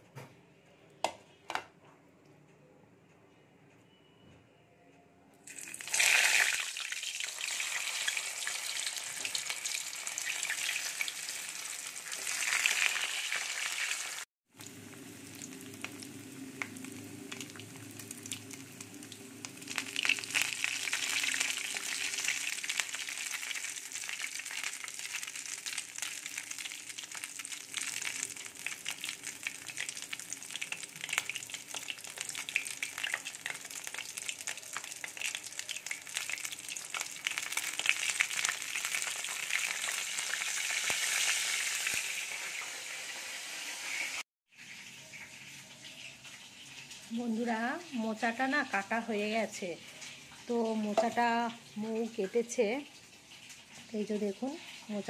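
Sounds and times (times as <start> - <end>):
food sizzling in hot oil: 5.4 - 55.0
oil crackling: 5.5 - 42.4.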